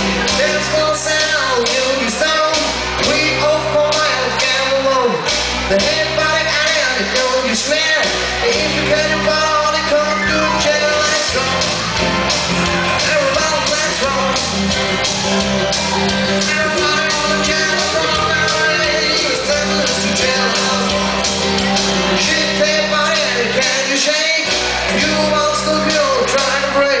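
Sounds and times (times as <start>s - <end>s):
man singing: 0.0s - 12.0s, 12.6s - 14.7s, 16.2s - 27.0s
electric guitars: 0.0s - 27.0s
keyboard: 0.0s - 27.0s
steady drum beat: 8.5s - 26.7s.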